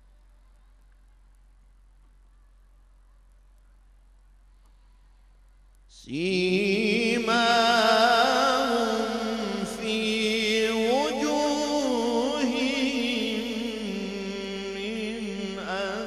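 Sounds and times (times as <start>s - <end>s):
man reciting melodically: 5.9s - 16.0s.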